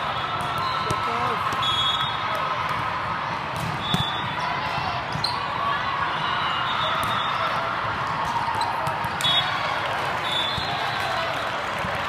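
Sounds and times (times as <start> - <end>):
volleyball hits: 0.0 - 5.5, 6.8 - 9.5.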